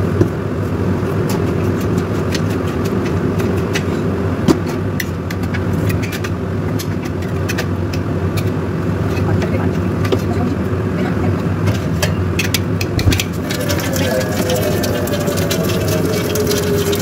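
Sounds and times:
cookware clinking: 13.0 - 17.0
kitchen appliance humming: 13.2 - 17.0.

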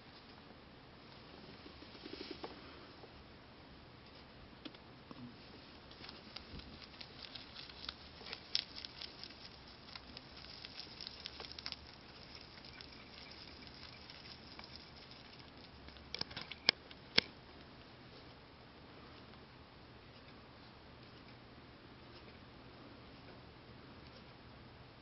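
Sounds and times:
rabbit chewing a leaf: 5.2 - 17.8.

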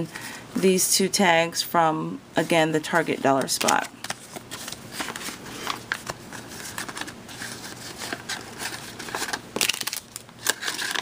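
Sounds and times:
paper rustling and crinkling: 2.9 - 11.0.

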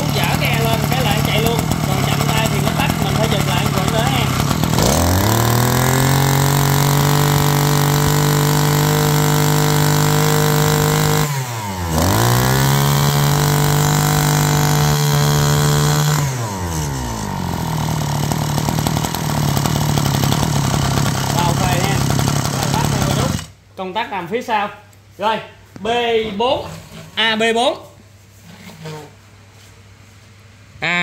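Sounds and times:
brush cutter engine running: 0.0 - 23.6.

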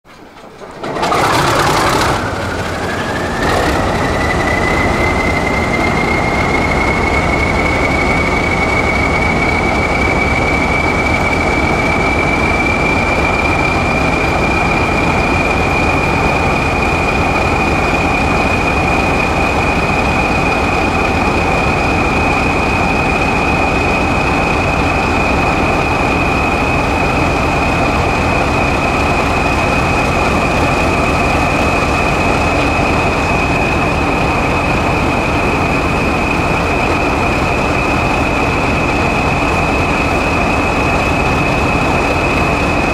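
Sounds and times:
diesel locomotive engine running: 0.1 - 42.9
turbocharger whistle: 1.5 - 16.5.

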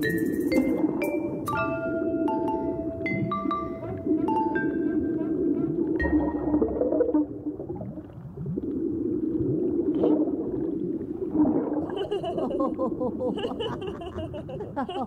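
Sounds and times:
cartoon bubbly gurgling: 0.6 - 13.2
gurgled laughter: 11.8 - 15.0.

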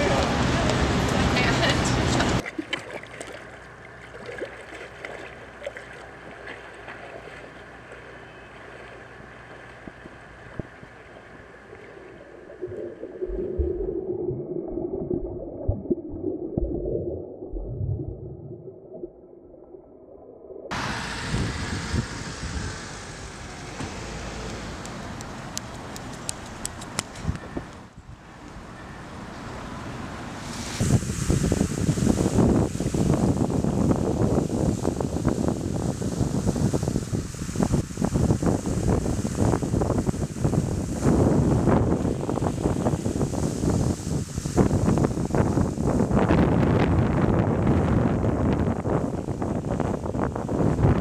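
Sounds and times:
traffic: 0.0 - 12.8, 20.7 - 32.3
swimmer splashing: 0.0 - 14.8, 20.7 - 27.3, 29.1 - 46.4
wind: 0.0 - 14.9, 20.6 - 51.0
pool water lapping: 0.0 - 27.3
bare feet running on asphalt: 25.2 - 27.5.

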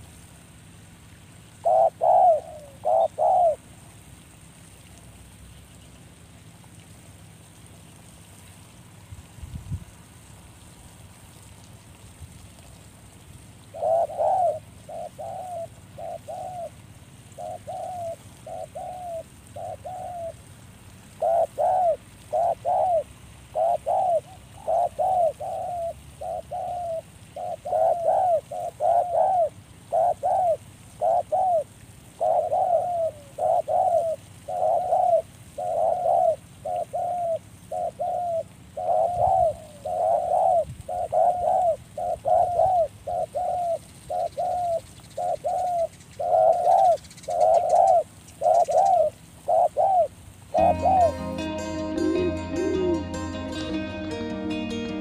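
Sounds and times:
dove cooing: 1.5 - 3.6, 13.6 - 20.4, 21.1 - 53.8.

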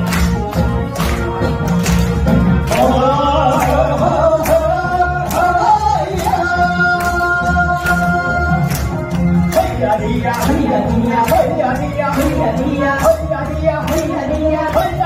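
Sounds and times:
backing music with drum beat: 0.0 - 15.0
man and woman singing duet: 2.7 - 8.8, 9.5 - 15.0.

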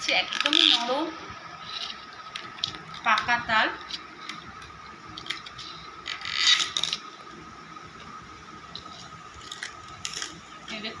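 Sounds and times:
fruit skin crackling: 0.1 - 7.3, 8.7 - 11.0
rasping tear of fruit skin: 5.2 - 7.0.

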